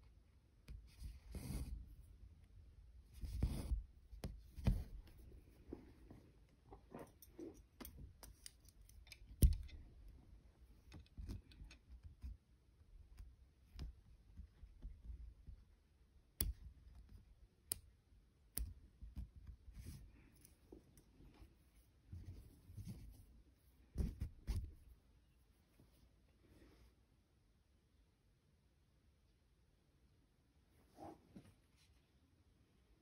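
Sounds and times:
thread pulled through fabric: 0:03.1 - 0:03.8.

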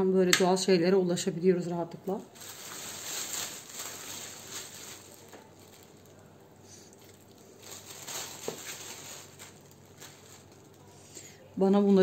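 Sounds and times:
plastic bag crinkling: 0:02.1 - 0:11.0.

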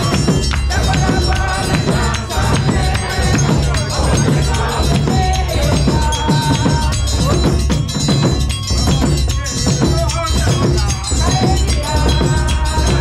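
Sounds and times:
group singing gospel song: 0:00.0 - 0:07.8, 0:10.8 - 0:13.0
heavy drum beat: 0:00.0 - 0:13.0
shaken percussion: 0:00.0 - 0:13.0.

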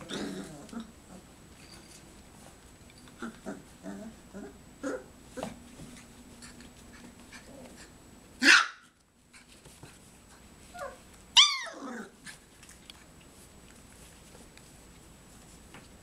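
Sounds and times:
puppies barking: 0:08.4 - 0:08.9
puppy yelp: 0:08.4 - 0:08.9, 0:10.7 - 0:12.0.

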